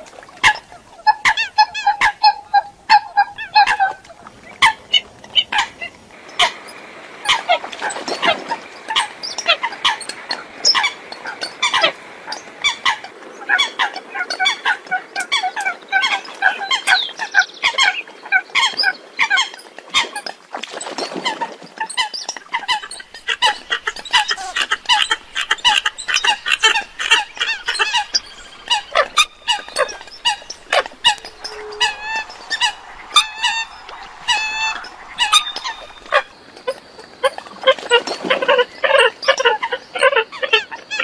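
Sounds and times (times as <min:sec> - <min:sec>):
coots calling: 0:00.0 - 0:06.6, 0:22.0 - 0:36.7.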